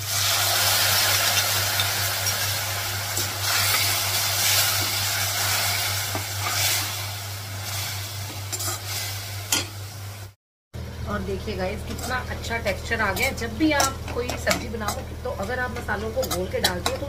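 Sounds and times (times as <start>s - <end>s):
spice paste sizzling in hot oil: 0.0s - 10.4s
steel spoon scraping and stirring: 8.5s - 9.6s, 13.1s - 17.0s.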